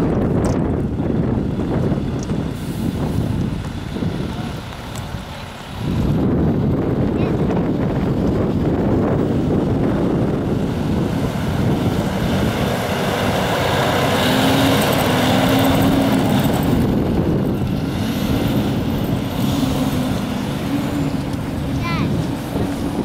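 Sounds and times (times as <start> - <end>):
fire engine idling: 0.7 - 17.9.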